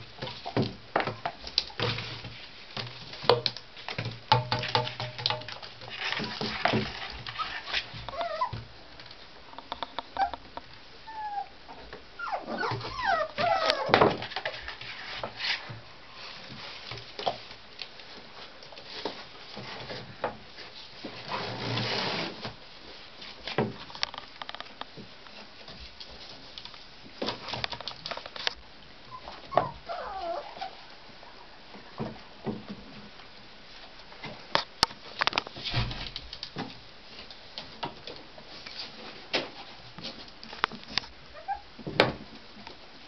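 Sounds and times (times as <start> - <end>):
puppies whimpering and yipping: 8.1 - 8.6, 10.1 - 10.4, 11.0 - 11.5, 12.2 - 13.9, 29.1 - 30.8, 41.3 - 41.7.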